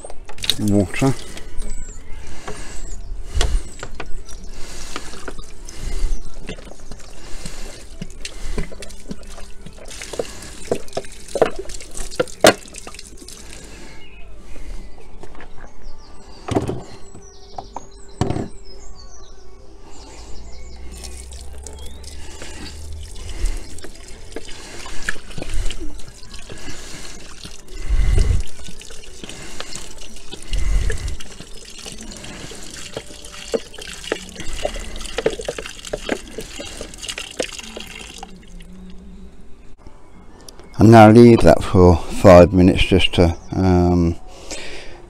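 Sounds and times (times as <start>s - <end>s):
water pouring into plastic tub: 6.6s - 13.7s, 20.9s - 38.6s.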